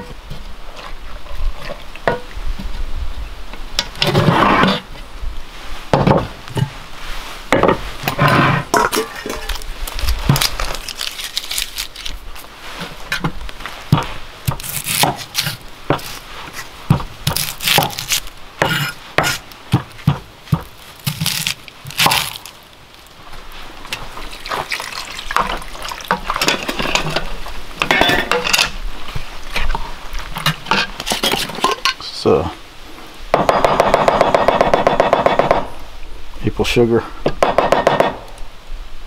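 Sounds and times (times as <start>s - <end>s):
handling sounds: 7.6s - 32.0s.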